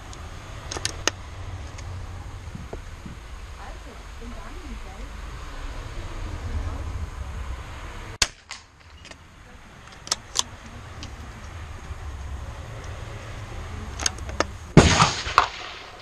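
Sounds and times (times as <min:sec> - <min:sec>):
rifle shot: 0:08.2 - 0:08.8, 0:14.8 - 0:16.0
rifle bolt metallic clicks: 0:09.9 - 0:11.2.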